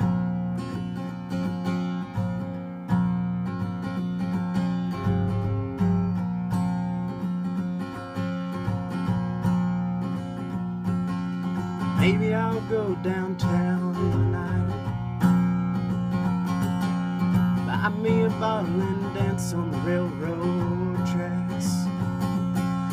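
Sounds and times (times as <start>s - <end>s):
acoustic guitar strumming chords: 0.0s - 22.9s.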